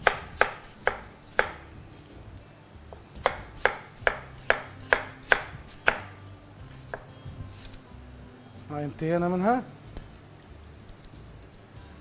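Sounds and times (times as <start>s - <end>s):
knife slicing potato: 0.0s - 1.7s, 2.9s - 6.1s.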